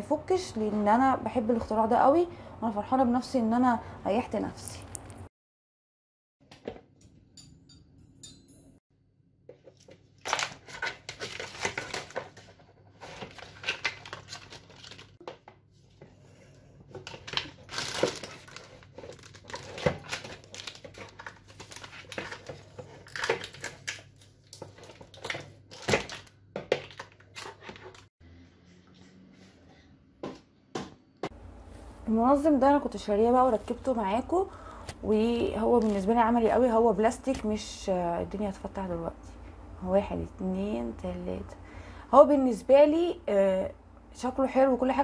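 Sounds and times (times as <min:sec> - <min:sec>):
plastic bags crinkling: 0:10.1 - 0:15.2, 0:17.0 - 0:28.0.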